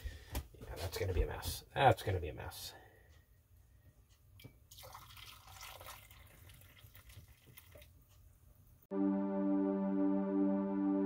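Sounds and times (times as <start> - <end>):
liquid trickling into a jar: 4.4 - 8.0
synthesizer music: 8.9 - 11.0.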